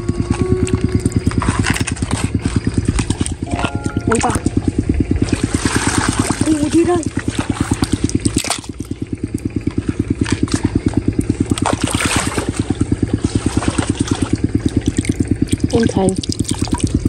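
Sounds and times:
small engine throbbing: 0.0 - 17.0
hands scooping wet mud: 9.8 - 17.0.

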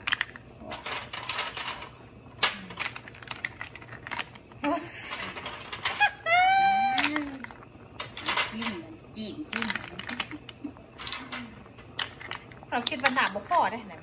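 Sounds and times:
snail shells clicking together: 0.0 - 4.7, 6.9 - 8.8, 9.4 - 13.5.

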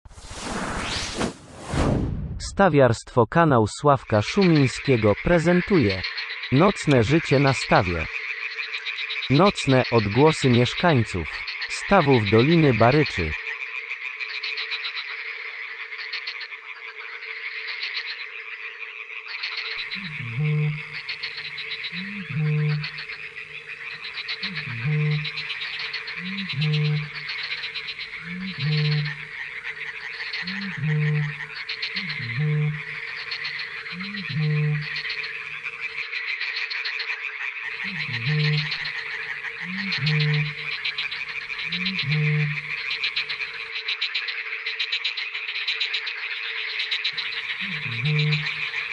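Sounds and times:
frogs croaking: 4.1 - 48.9
steady low tone: 19.8 - 35.7, 37.8 - 43.5, 47.2 - 48.9
deep booming call: 19.8 - 36.0, 37.8 - 43.6, 47.2 - 48.9.

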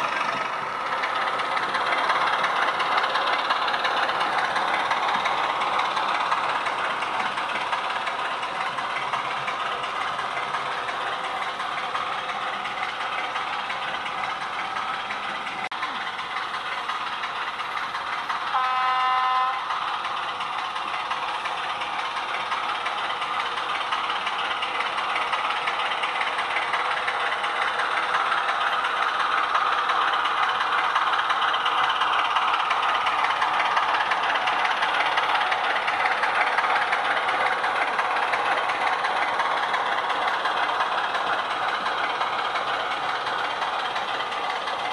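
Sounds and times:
model train running on track: 0.0 - 44.9
train horn blast: 18.5 - 19.7.

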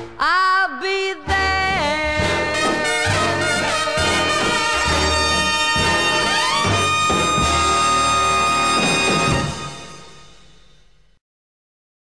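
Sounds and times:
big band brass playing: 1.2 - 10.8.

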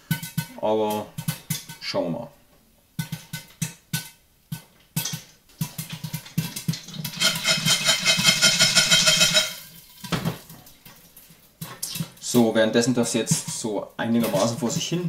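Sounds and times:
popcorn popping in a pot: 3.0 - 10.6, 11.8 - 15.0
metallic rattle of lid and kernels: 5.0 - 10.1.

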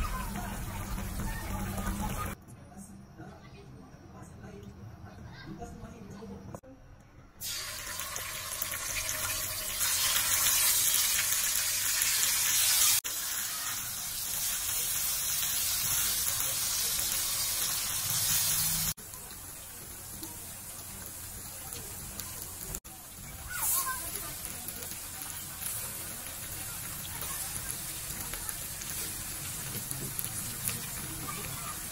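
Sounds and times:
paste sizzling in hot oil: 7.4 - 31.9.

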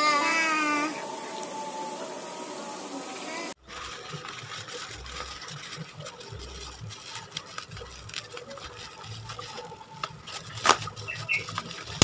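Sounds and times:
bubble wrap crinkling: 3.5 - 12.0.

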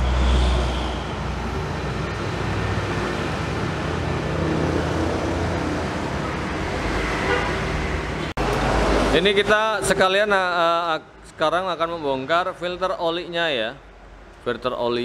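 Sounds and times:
vehicle engines humming: 0.0 - 10.2.

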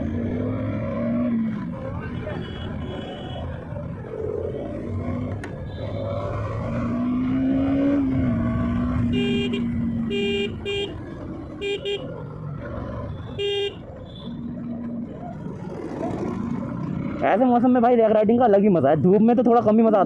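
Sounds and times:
motorcycle engine: 0.0 - 18.0
road noise: 0.0 - 20.0
vehicle horn honking: 2.3 - 3.5, 9.1 - 11.0, 11.6 - 12.1, 13.3 - 14.4.

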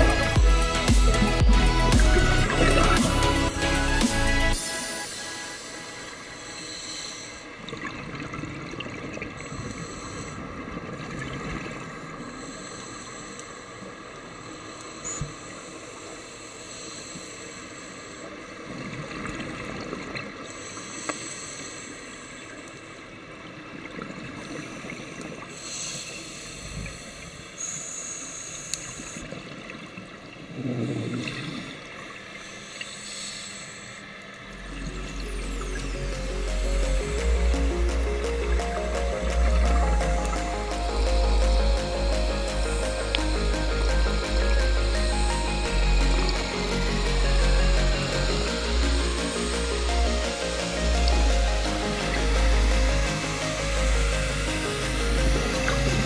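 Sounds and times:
underwater hiss: 0.0 - 7.7, 9.4 - 10.6, 12.2 - 18.9, 20.4 - 23.1, 24.5 - 29.3, 30.8 - 34.4
regulator hissing inhale: 4.0 - 7.6, 9.4 - 10.5, 12.3 - 18.8, 20.4 - 23.2, 25.5 - 29.3, 31.1 - 34.4.

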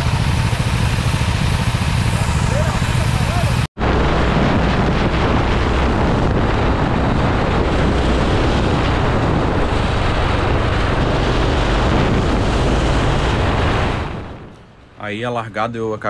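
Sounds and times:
go-kart engine running: 0.0 - 3.7
wind buffeting microphone: 0.0 - 15.3.

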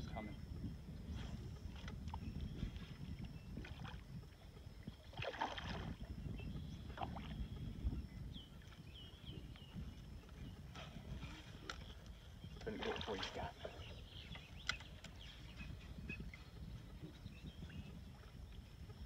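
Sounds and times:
fish splashing in water: 5.1 - 6.0.

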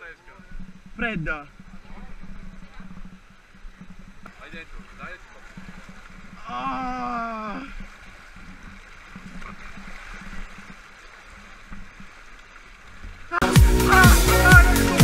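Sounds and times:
electronic dance music: 13.4 - 15.0.

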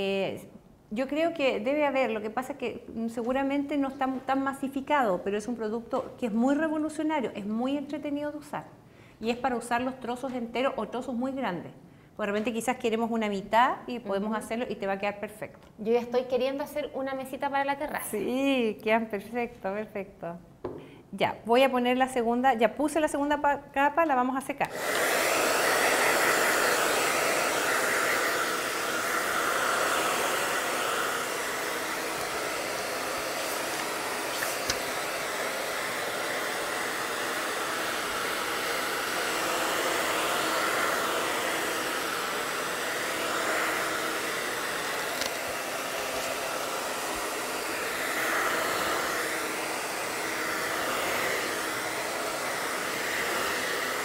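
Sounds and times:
hair dryer blowing: 24.6 - 54.0.

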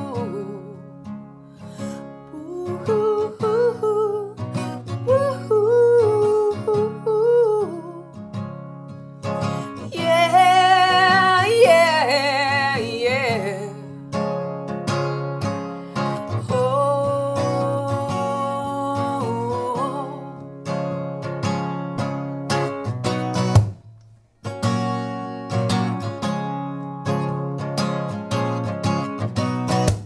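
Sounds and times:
woman singing: 0.0 - 1.1, 1.9 - 8.2, 9.4 - 14.0, 16.0 - 20.5
strummed acoustic guitar: 0.0 - 30.0.

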